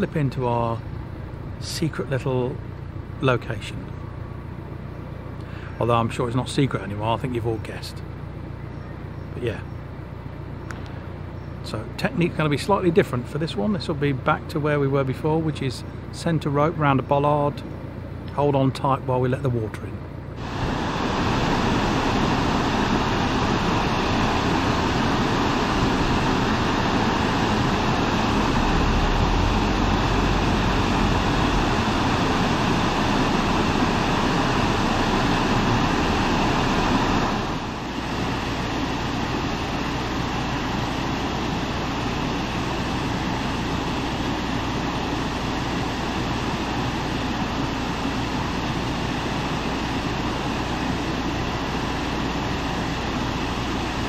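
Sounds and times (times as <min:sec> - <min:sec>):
water rushing into lock chamber: 0:20.4 - 0:45.8.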